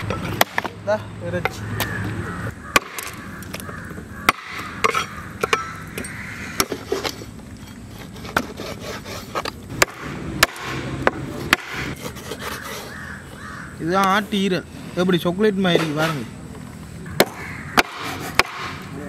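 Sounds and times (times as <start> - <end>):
knife chopping on wooden board: 9.7 - 12.8, 17.2 - 18.8.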